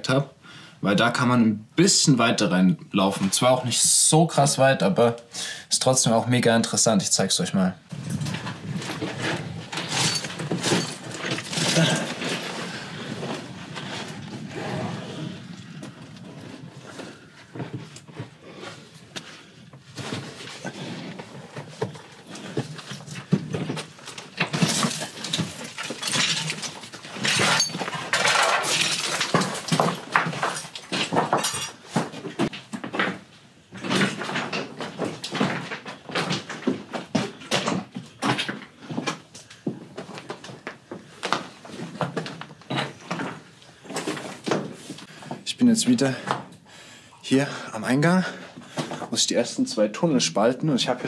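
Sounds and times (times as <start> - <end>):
stones crunching and clattering: 8.0 - 14.5, 19.9 - 33.2.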